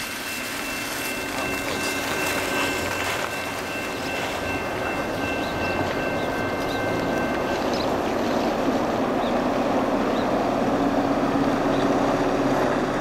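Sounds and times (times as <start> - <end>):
steady high-pitched tone: 0.0 - 9.2
diesel locomotives running under power: 0.0 - 13.0.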